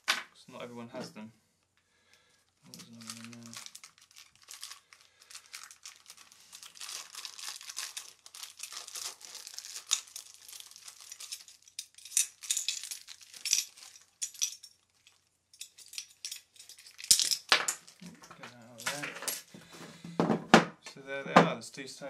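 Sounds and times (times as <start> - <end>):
packaging rustling and crinkling: 2.4 - 20.0.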